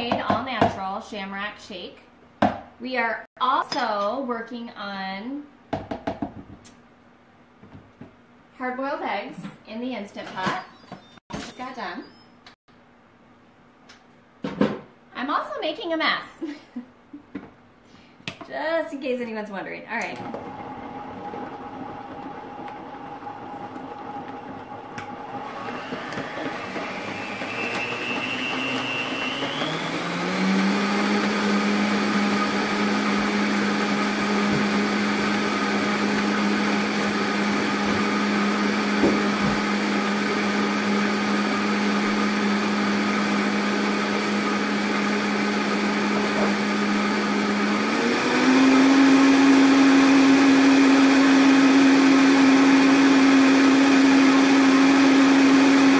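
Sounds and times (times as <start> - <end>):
blender motor whining: 20.0 - 55.9.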